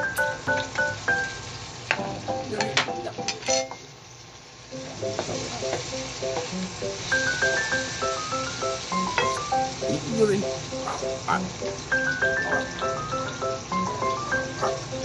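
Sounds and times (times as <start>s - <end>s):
vegetables sizzling in a pan: 0.0s - 15.0s
spatula clinking and scraping pan: 2.7s - 3.9s.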